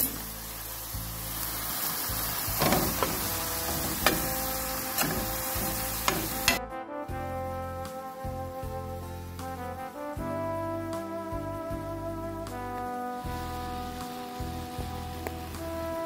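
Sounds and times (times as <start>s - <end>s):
meat sizzling in a skillet: 0.0s - 6.7s, 11.2s - 16.0s
utensil scraping a pan: 2.6s - 6.7s.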